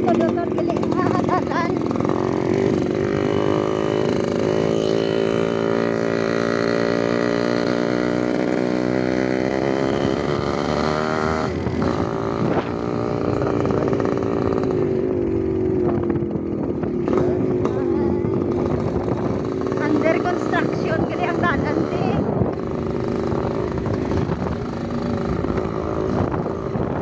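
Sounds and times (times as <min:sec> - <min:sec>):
small motorcycle engine running: 0:00.0 - 0:27.0.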